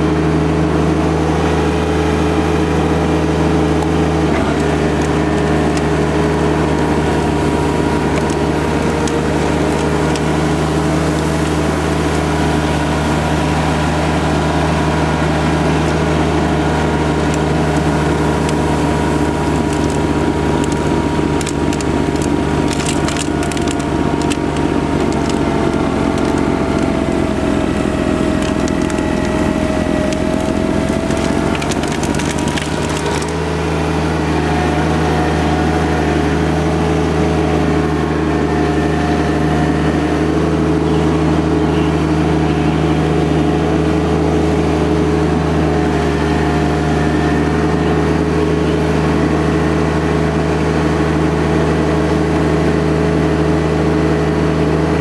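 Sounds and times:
snow crunching in blower: 0:00.0 - 0:55.0
tractor diesel engine running: 0:00.0 - 0:55.0
snowblower throwing snow: 0:01.3 - 0:41.2.

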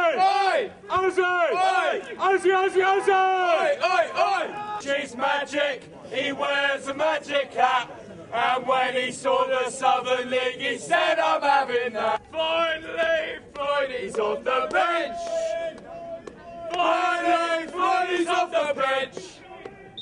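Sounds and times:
football supporters chanting: 0:00.0 - 0:20.0.

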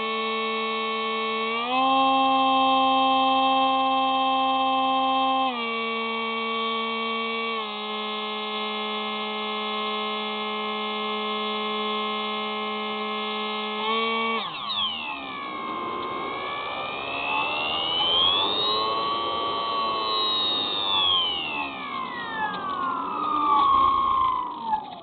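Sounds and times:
model plane motor whine: 0:00.0 - 0:25.0.

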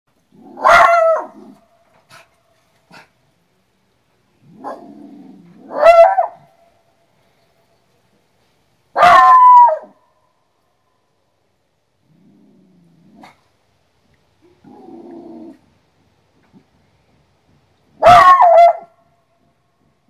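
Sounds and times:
dog barking: 0:00.5 - 0:01.4, 0:05.7 - 0:06.5, 0:09.0 - 0:10.0, 0:18.0 - 0:19.0.

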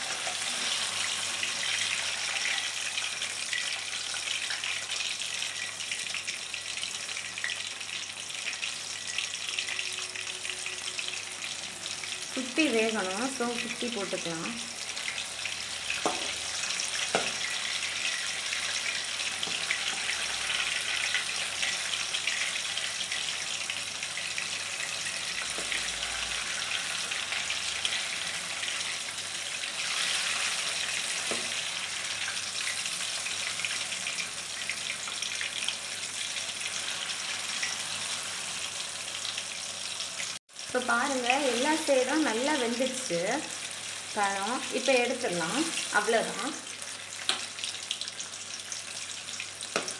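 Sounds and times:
hot oil sizzling: 0:00.0 - 0:49.9
slotted spoon knocking on pan: 0:17.1 - 0:17.5.

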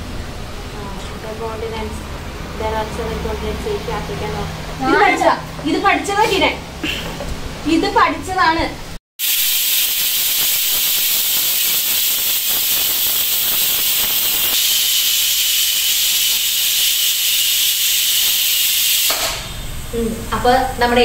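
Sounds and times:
pressure cooker whistling: 0:09.2 - 0:20.0
steam hissing: 0:09.2 - 0:21.0.

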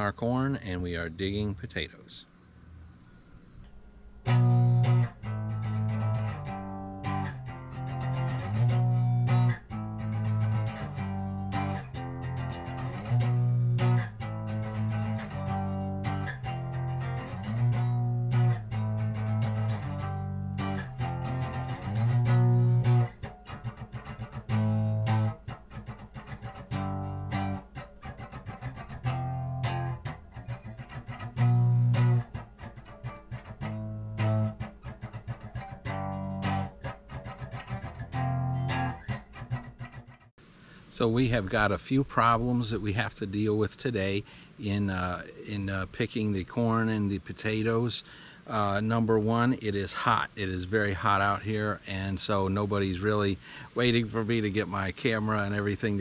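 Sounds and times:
plucked guitar: 0:03.7 - 0:40.3
bass guitar line: 0:04.2 - 0:40.3.

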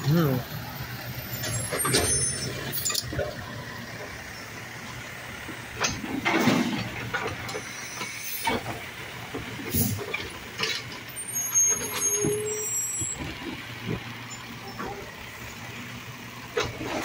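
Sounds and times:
truck engine running: 0:00.0 - 0:17.0
trash cart bangs and clunks: 0:01.3 - 0:04.2, 0:05.5 - 0:15.6, 0:16.5 - 0:17.0.

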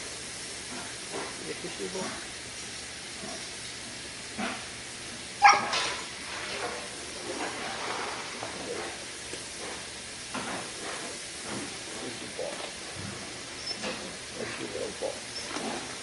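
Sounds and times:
steam hissing from irons: 0:00.0 - 0:16.0.

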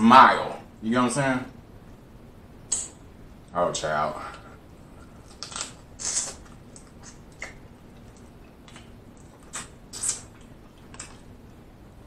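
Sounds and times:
wet smacks and slurps while chewing: 0:05.3 - 0:11.4.

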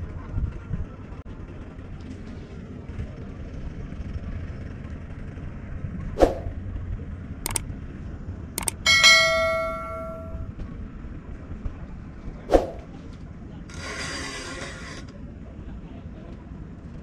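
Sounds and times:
metallic clang ringing: 0:08.6 - 0:10.5.

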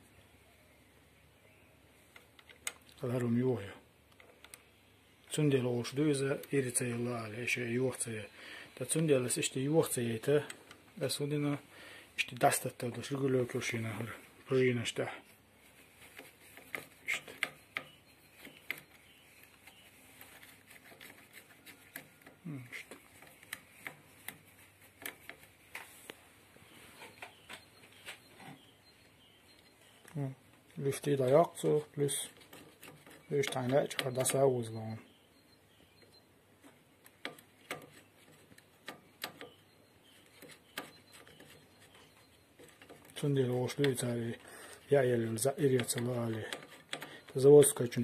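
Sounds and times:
small metal clicks and taps: 0:36.0 - 0:44.0, 0:45.6 - 0:47.9
sharp metallic clicks: 0:45.2 - 0:48.0.

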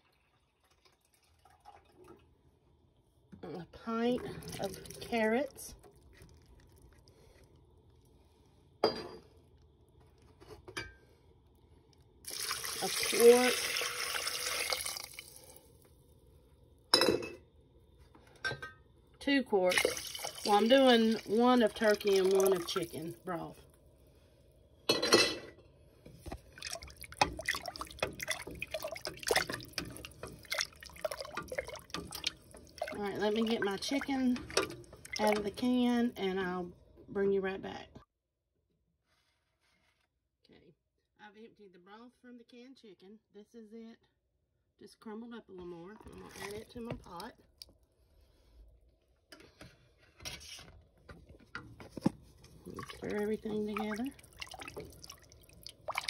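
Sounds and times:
liquid sloshing and dripping: 0:00.0 - 0:16.5, 0:19.6 - 0:24.3, 0:25.9 - 0:35.7, 0:45.8 - 0:48.5, 0:51.0 - 0:56.0
broth splashing into pot: 0:04.1 - 0:09.6, 0:12.2 - 0:15.8, 0:19.7 - 0:23.2, 0:26.2 - 0:35.6, 0:52.6 - 0:56.0.

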